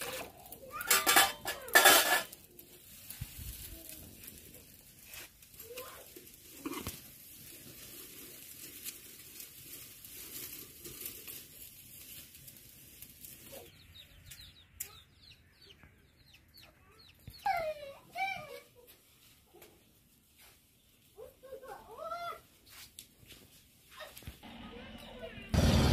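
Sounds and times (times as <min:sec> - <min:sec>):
small birds chirping: 0:13.2 - 0:18.0.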